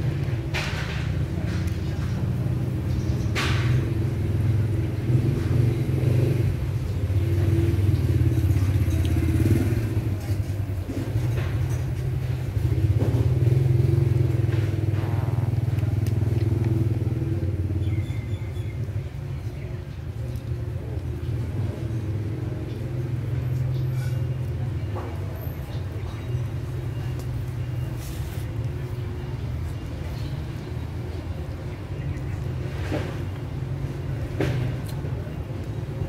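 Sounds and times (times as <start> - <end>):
low motor rumble: 0.0 - 36.0.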